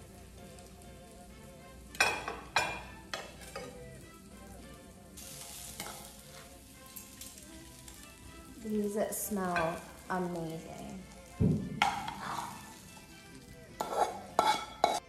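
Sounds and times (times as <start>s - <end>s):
green beans sizzling in pan: 0.0s - 15.0s
metal tongs clattering on skillet: 1.9s - 3.8s, 5.5s - 8.0s, 9.4s - 10.1s, 11.8s - 12.2s, 13.8s - 15.0s.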